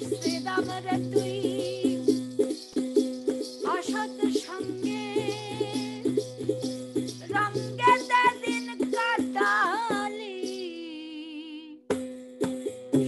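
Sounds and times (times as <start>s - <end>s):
woman singing with vibrato: 0.0s - 2.2s, 3.6s - 6.2s, 7.2s - 11.8s.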